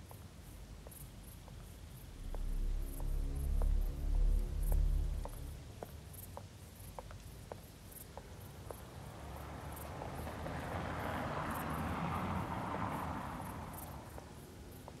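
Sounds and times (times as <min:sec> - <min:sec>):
insect chirping: 0:00.0 - 0:09.9
faint footsteps walking: 0:00.8 - 0:08.9
rush of noise: 0:02.1 - 0:06.1.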